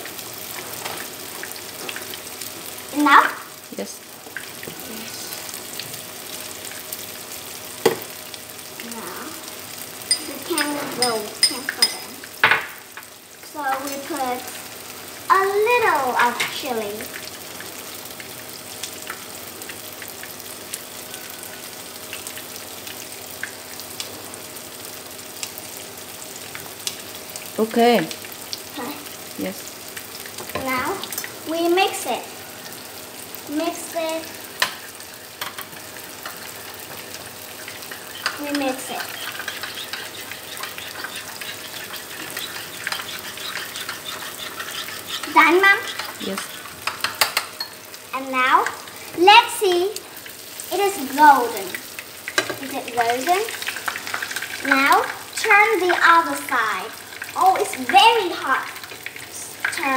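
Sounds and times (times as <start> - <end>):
oil popping and crackling: 0.0 - 24.2, 25.3 - 59.9
tofu sizzling in hot oil: 0.0 - 59.9
spoon stirring in ceramic bowl: 37.6 - 47.8.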